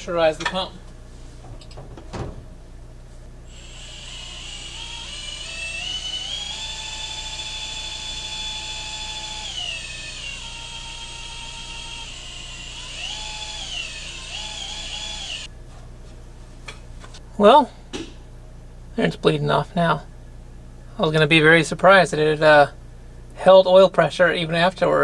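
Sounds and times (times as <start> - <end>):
electric drill whine: 3.5 - 15.5.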